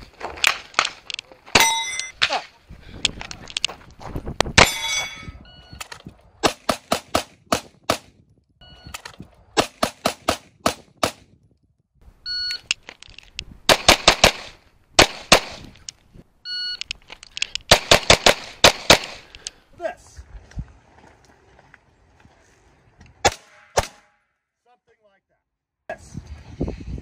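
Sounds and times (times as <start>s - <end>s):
metallic ring of steel target: 1.6s - 2.2s, 4.6s - 5.4s
pistol fire: 13.7s - 15.6s, 17.7s - 19.2s.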